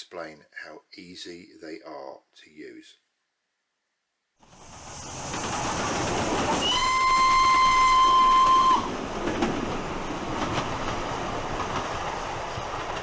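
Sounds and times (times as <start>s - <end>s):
train rushing: 4.4s - 13.0s
train whistle: 6.5s - 9.0s.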